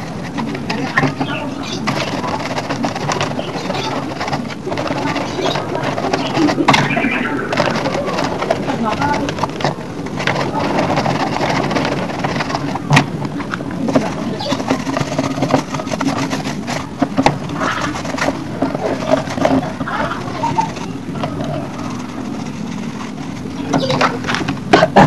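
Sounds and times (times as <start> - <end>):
plastic parts knocking and clicking: 0.0 - 25.0
steady low hum: 0.0 - 25.0.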